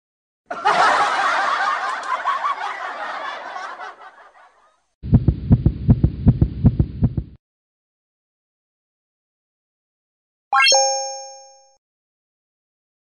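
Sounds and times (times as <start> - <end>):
rapid pounding heartbeat: 5.0 - 7.4.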